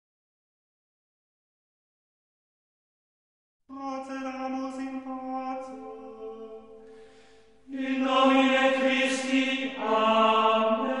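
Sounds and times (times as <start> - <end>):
choral chanting: 4.3 - 11.0.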